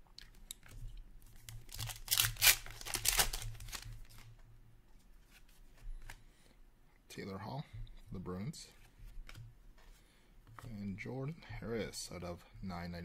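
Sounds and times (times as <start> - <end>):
wrapping crinkling: 0.5 - 4.3.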